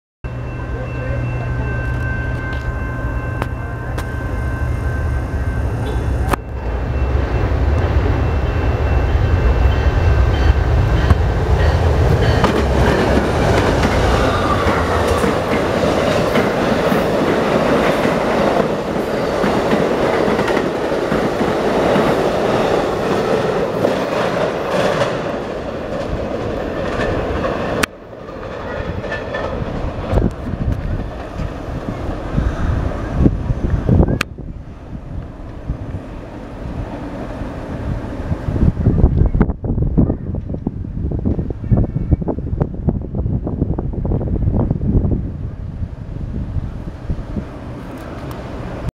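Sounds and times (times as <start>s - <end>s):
diesel locomotive engines humming: 0.3s - 48.9s
train wheels clickety-clack: 9.7s - 32.0s.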